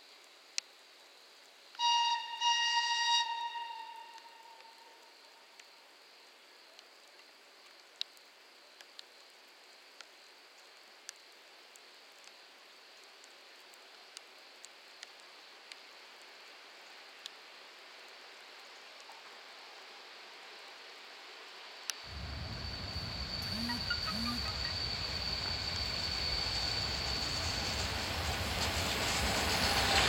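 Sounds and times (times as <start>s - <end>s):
sharp light ticks: 6.8s - 9.1s, 10.8s - 12.4s, 13.2s - 15.8s
railway station hiss: 19.6s - 30.0s
distant train approaching: 22.0s - 30.0s.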